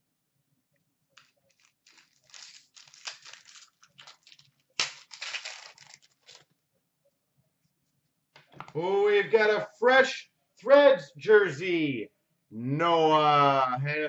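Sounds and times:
foil wrapper crinkling and tearing: 1.2s - 6.5s
sharp crack: 1.9s - 6.0s.

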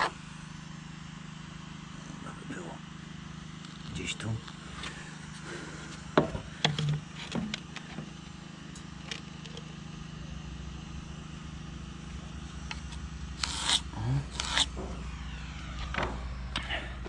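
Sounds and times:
steady low hum: 0.0s - 17.0s
loud scrape: 13.4s - 15.1s.

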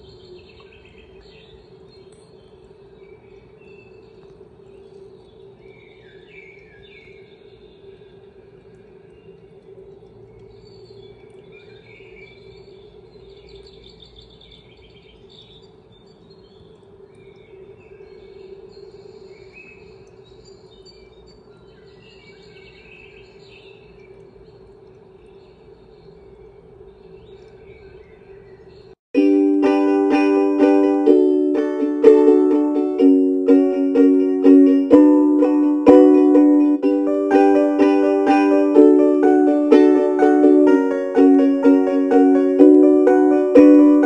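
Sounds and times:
bird chirps: 0.0s - 29.0s
steady hum: 29.2s - 44.0s
ukulele music: 29.2s - 44.0s.

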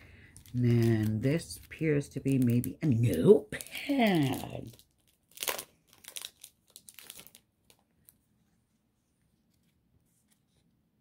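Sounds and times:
wrapping crinkling and tearing: 0.1s - 8.3s.

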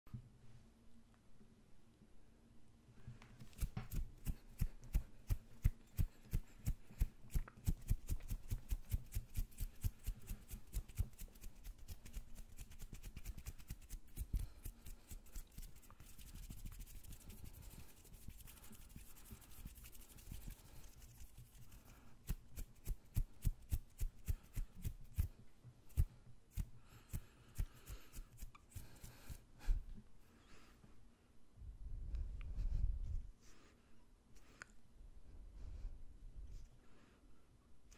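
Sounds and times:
hands tapping and flicking skin: 3.3s - 29.3s
hands rubbing hiss: 3.4s - 29.4s.

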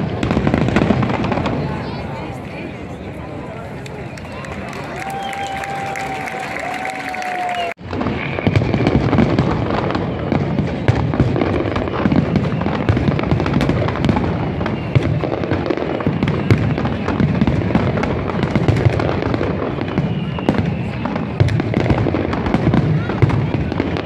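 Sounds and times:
fireworks bangs and pops: 0.0s - 2.6s, 7.7s - 24.0s.

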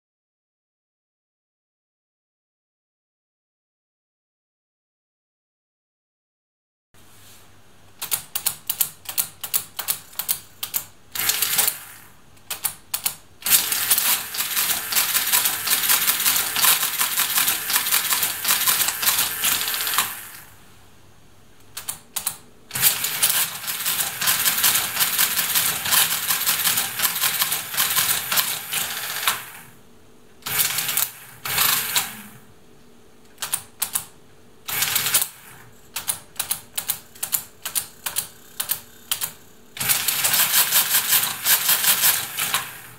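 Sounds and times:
calculator mechanism clattering: 8.0s - 11.9s, 12.5s - 20.4s, 21.8s - 29.6s, 34.7s - 42.9s.

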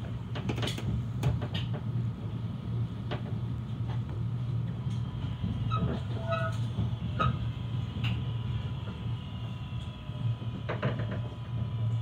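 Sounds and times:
train running rumble: 0.0s - 12.0s
braking train whine: 3.2s - 12.0s.

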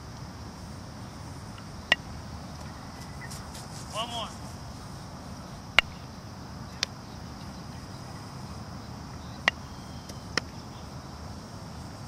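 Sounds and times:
baseball bat cracks: 5.8s - 6.0s.

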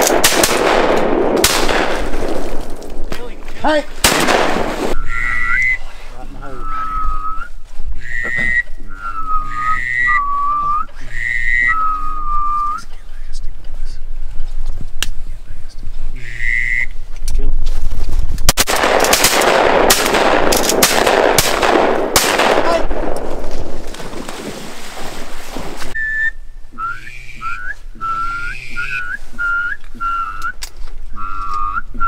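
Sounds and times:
shotgun fire: 0.0s - 2.9s, 4.0s - 5.0s, 18.5s - 24.6s.

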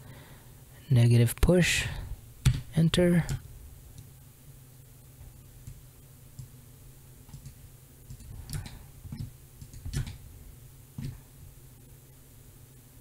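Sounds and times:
faint low hum: 0.0s - 13.0s
computer mouse and keyboard clicks: 7.3s - 10.2s.

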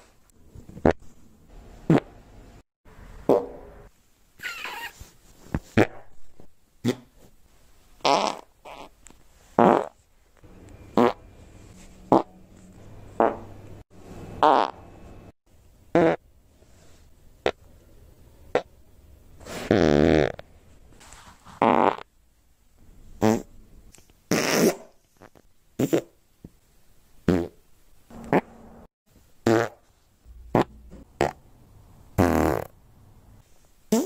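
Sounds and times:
farts: 1.9s - 2.1s, 8.0s - 8.9s, 9.6s - 10.0s, 11.0s - 11.2s, 14.4s - 14.8s, 19.6s - 20.4s, 21.6s - 22.1s, 23.2s - 23.5s, 24.3s - 26.1s, 27.3s - 27.6s, 29.4s - 29.8s, 32.2s - 32.7s.

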